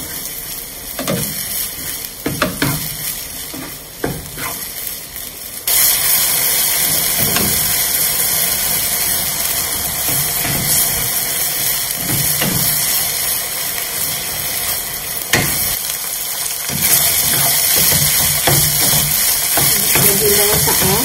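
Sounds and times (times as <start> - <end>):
meat sizzling in oil: 0.0 - 21.0
wooden spatula scraping pan: 3.4 - 4.7.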